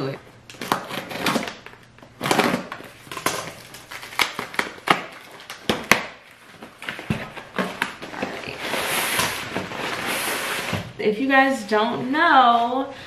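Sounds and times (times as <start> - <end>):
tape tearing: 0.5 - 10.9.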